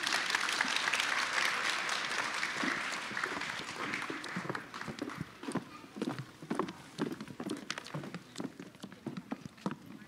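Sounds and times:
audience applauding: 0.0s - 5.4s
high heel footsteps on stage: 2.6s - 10.0s.

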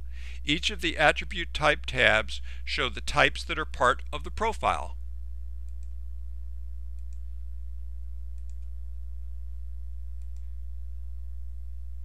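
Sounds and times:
low electrical hum: 0.0s - 12.0s
computer mouse clicking: 5.7s - 6.0s, 7.0s - 7.2s, 8.4s - 8.7s, 10.2s - 10.5s.

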